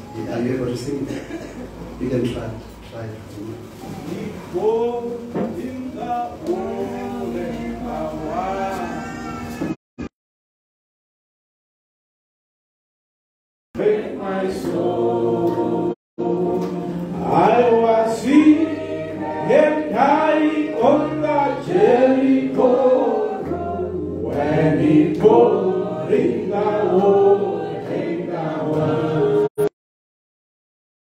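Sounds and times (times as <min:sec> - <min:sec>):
congregation singing: 0:03.6 - 0:09.8, 0:13.8 - 0:29.7.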